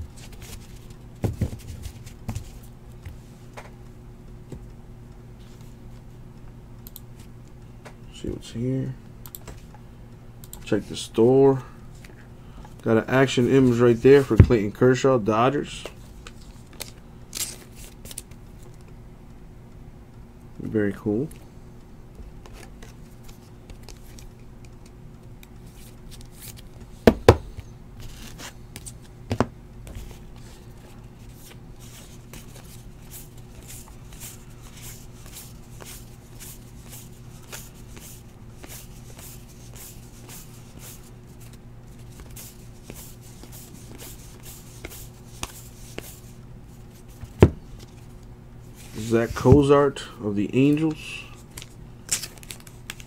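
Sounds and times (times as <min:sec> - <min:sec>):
steady low hum: 0:00.0 - 0:53.0
cards snapping and sliding: 0:51.5 - 0:53.0.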